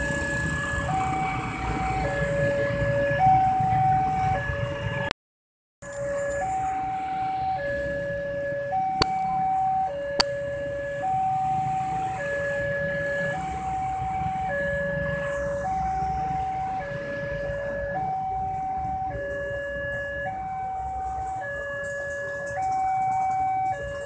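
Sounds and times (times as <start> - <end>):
low rumble of traffic: 0.0 - 5.1, 6.0 - 24.0
level crossing two-tone alarm: 5.8 - 8.0.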